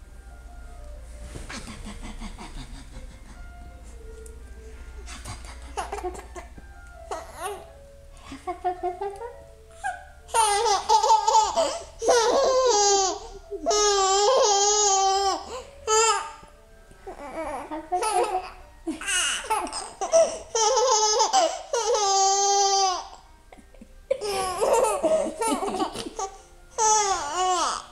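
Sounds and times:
baby laughing: 0:01.5 - 0:03.6, 0:05.1 - 0:07.7, 0:08.3 - 0:16.4, 0:17.2 - 0:27.8.

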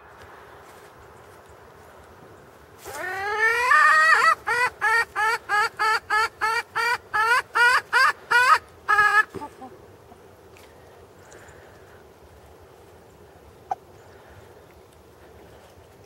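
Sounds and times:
chicken squawking: 0:02.8 - 0:09.8.

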